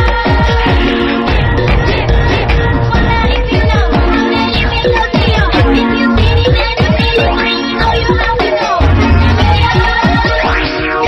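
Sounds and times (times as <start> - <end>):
electronic dance music: 0.0 - 11.0
falling synth sweeps: 1.1 - 4.8.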